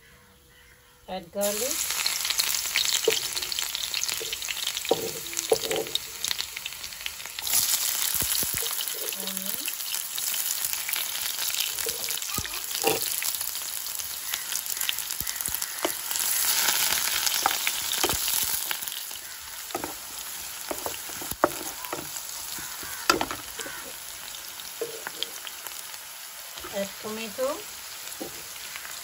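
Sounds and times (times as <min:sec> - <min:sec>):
onion and garlic sizzling in oil: 0:01.4 - 0:29.0
spatula scraping and knocking pan: 0:04.2 - 0:06.0, 0:12.7 - 0:13.1, 0:19.7 - 0:23.9.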